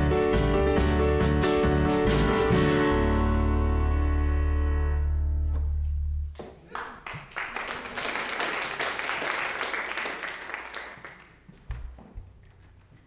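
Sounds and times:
band chord ringing: 0.0 - 6.2
congregation applauding: 6.4 - 11.5.

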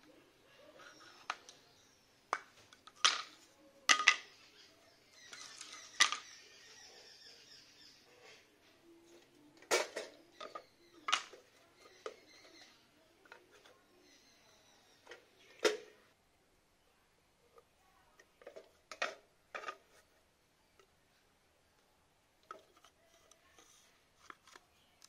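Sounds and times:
clicks of small hard objects: 2.3 - 4.4, 5.3 - 6.3.

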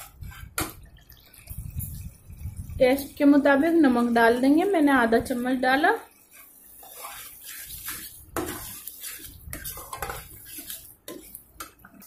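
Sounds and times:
spice paste sizzling: 2.7 - 12.0
spatula scraping a pan: 2.9 - 12.0.

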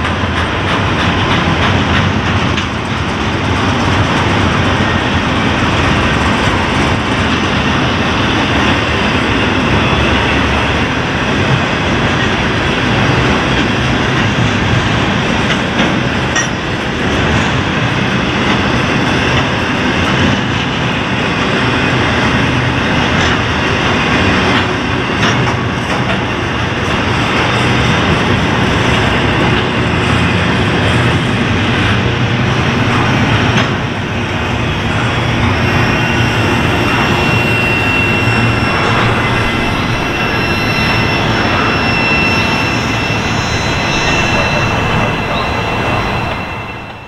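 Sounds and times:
train cars clanking: 0.0 - 47.0
train wheels rumbling on rail: 0.0 - 47.0
high wheel squeal: 6.1 - 13.8, 34.2 - 47.0.

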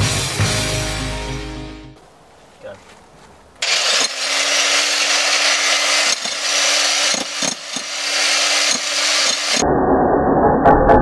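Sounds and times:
jackhammer hammering on plastic: 3.6 - 9.6
motor hum: 3.6 - 9.6.

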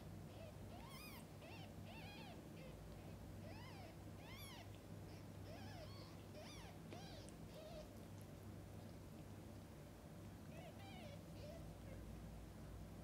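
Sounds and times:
kittens mewing: 0.3 - 8.1, 10.5 - 12.2.

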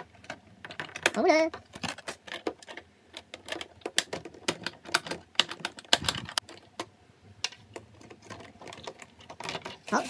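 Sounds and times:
plastic clicking and crackling: 0.0 - 10.0.

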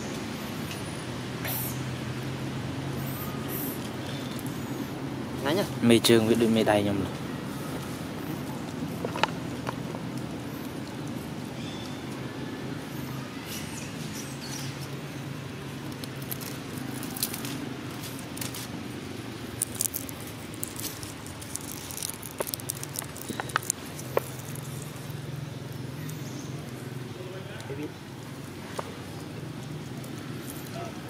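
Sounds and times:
monkey picking at coconut husk: 19.4 - 25.2.

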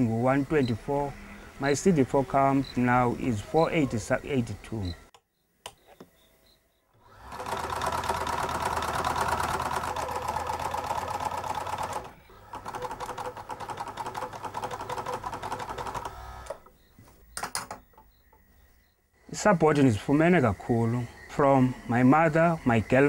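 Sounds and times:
sewing machine stitching: 7.0 - 16.7.

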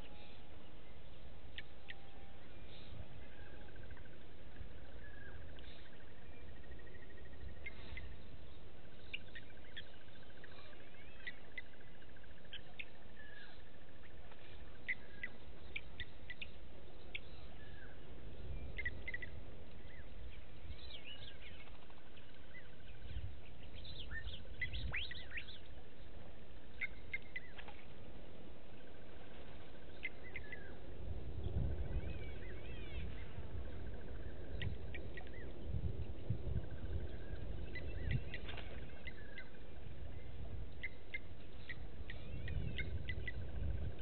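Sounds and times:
bird trill: 0.0 - 14.2, 14.8 - 27.9, 29.4 - 44.0
low background rumble and hiss: 0.0 - 44.0
birds chirping and whistling: 12.4 - 27.8, 29.9 - 44.0.

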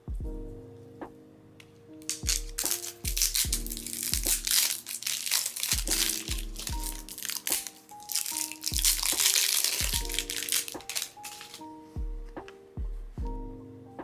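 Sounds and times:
background music with beat: 0.0 - 1.2, 2.1 - 14.0
plastic wrap crinkling: 2.0 - 11.8.

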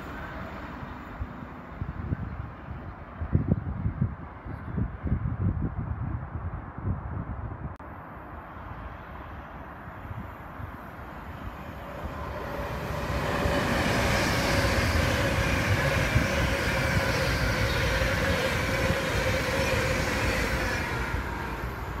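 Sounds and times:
train whine: 0.0 - 2.5, 10.2 - 22.0
train wheels rushing on rail: 10.8 - 22.0.

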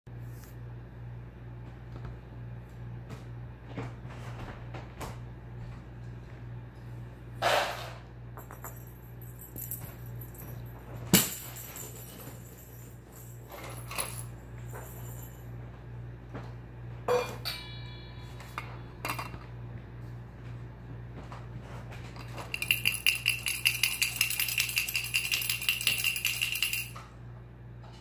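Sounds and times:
dishes and cutlery clanking: 17.1 - 19.5.

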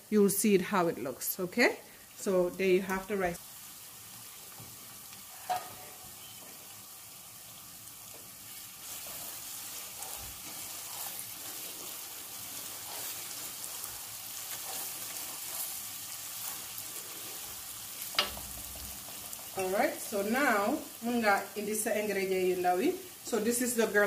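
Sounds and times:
sauce sizzling in a pot: 0.0 - 24.0
wooden spoon stirring: 8.1 - 17.5.

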